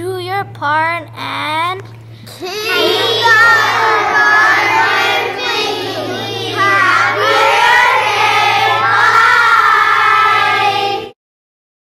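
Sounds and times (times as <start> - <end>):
steady low hum: 0.0 - 11.2
children singing in unison: 2.6 - 11.2.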